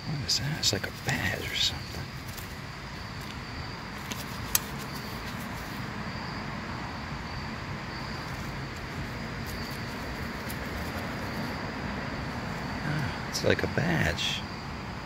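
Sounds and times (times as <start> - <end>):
low outdoor background rumble: 0.0 - 15.0.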